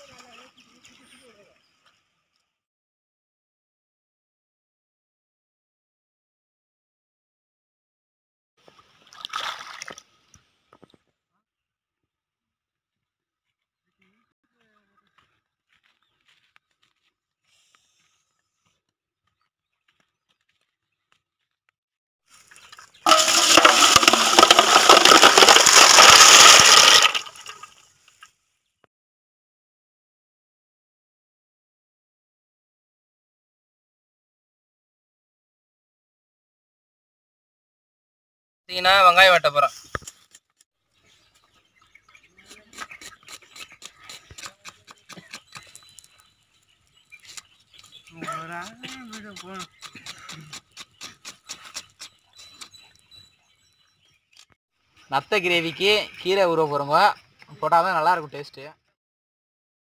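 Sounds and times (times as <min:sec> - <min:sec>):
water gushing into metal basin: 0:23.1 - 0:27.8.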